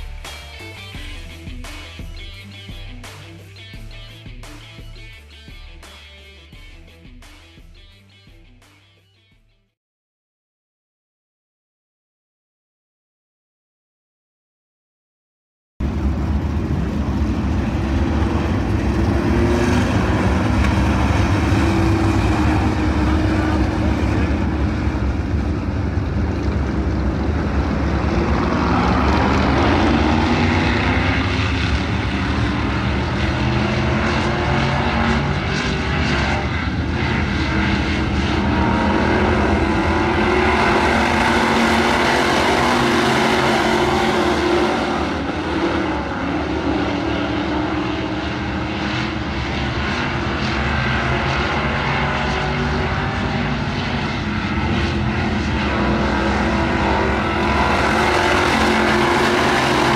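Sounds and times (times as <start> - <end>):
race car engines roaring: 15.8 - 59.9.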